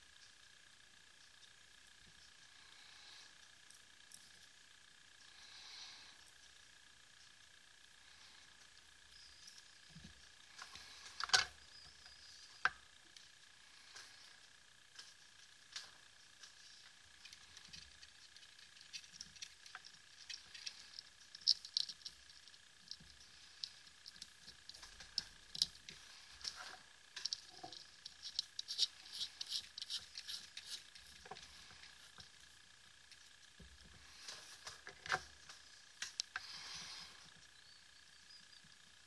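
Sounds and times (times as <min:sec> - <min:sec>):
small clicks and ticks: 0:00.0 - 0:37.6
scratchy rubbing of rubber: 0:27.4 - 0:31.2.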